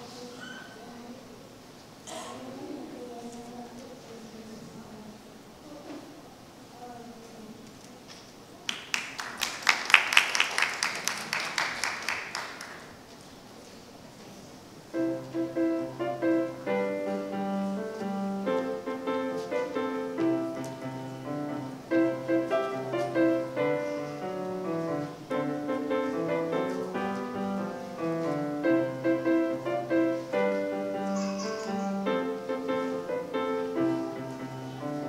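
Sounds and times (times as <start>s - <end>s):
grand piano playing: 14.9s - 35.0s.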